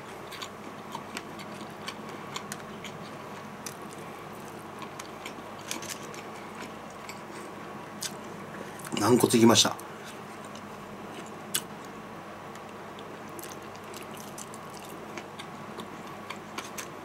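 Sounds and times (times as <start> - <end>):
person chewing crunchy food: 0.0 - 8.2, 12.6 - 17.0
faint steady hum: 0.0 - 17.0.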